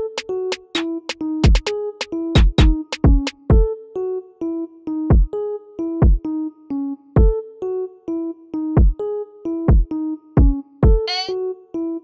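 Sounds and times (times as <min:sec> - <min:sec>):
drum machine beat: 0:00.0 - 0:01.7, 0:02.4 - 0:03.4
deep kick drums: 0:02.4 - 0:03.6, 0:09.7 - 0:11.0.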